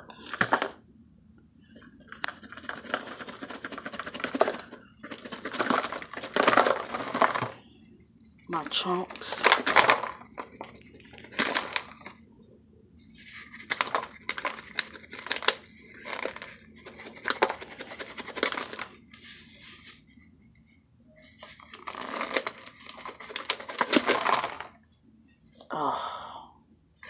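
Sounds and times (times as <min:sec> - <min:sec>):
brittle chunks crunching: 0:02.4 - 0:07.6, 0:09.1 - 0:12.1, 0:21.7 - 0:24.7.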